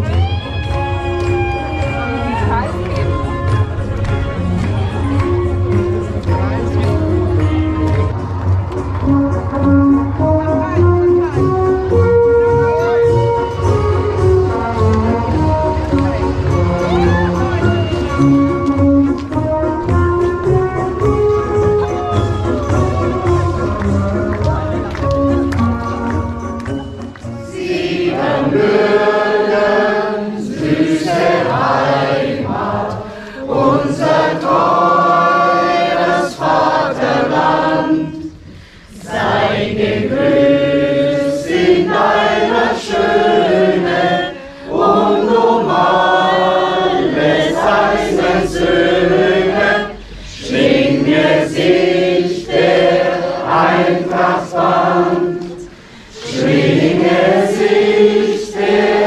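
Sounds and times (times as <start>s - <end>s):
men and women singing together: 27.5s - 59.0s.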